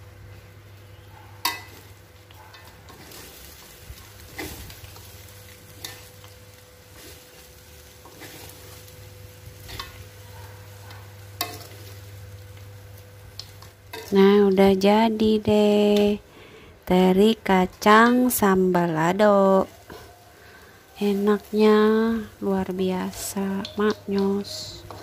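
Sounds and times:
low sizzle: 0:00.0 - 0:25.0
spatula clinking on wok: 0:01.4 - 0:01.8, 0:23.6 - 0:25.0
metal spatula scraping a wok: 0:02.6 - 0:06.3, 0:06.9 - 0:10.2, 0:11.4 - 0:12.1, 0:13.4 - 0:14.2, 0:19.7 - 0:21.6, 0:23.2 - 0:25.0.

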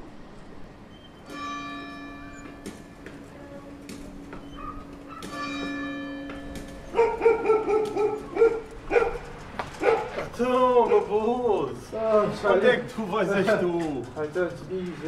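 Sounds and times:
bell ringing: 0:01.2 - 0:07.7
dog barking: 0:04.5 - 0:05.4, 0:06.9 - 0:10.2, 0:10.8 - 0:11.1.

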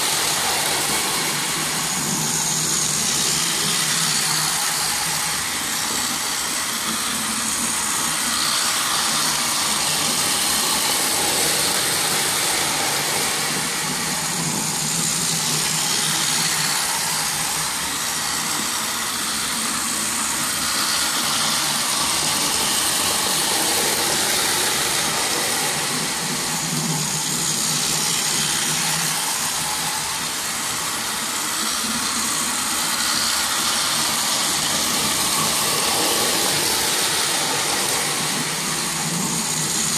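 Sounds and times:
toy train motors whirring: 0:00.0 - 0:39.9.

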